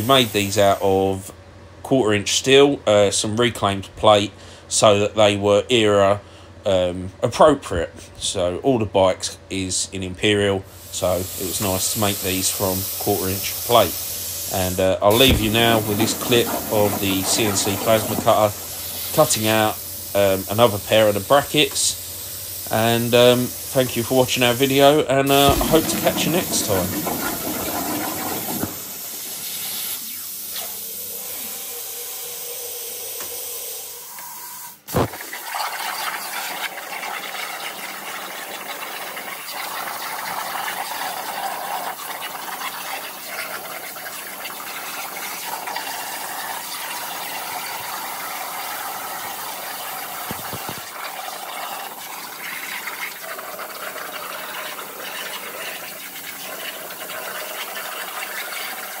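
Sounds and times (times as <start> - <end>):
plasma cutter arc hissing: 10.7 - 27.0, 28.6 - 35.2, 48.9 - 50.9.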